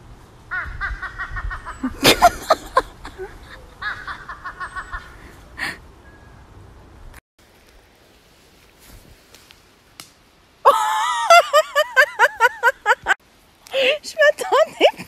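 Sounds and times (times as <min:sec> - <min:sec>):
crow cackling: 0:00.5 - 0:01.9, 0:03.2 - 0:05.4
bursts of laughter: 0:00.5 - 0:05.3, 0:10.7 - 0:13.2.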